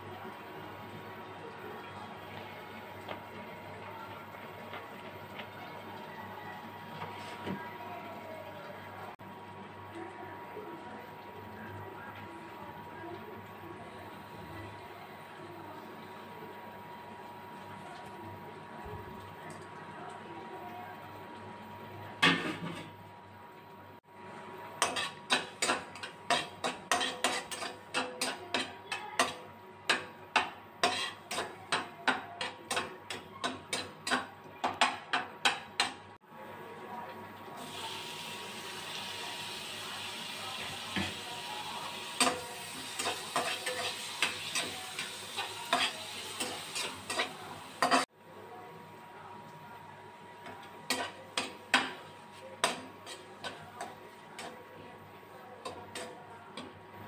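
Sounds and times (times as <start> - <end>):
metal spatula scraping a pan: 24.8 - 30.0, 30.8 - 34.2, 42.2 - 48.1, 50.9 - 54.6
tomatoes sizzling in a pan: 24.8 - 34.8, 37.5 - 48.1, 50.4 - 56.8.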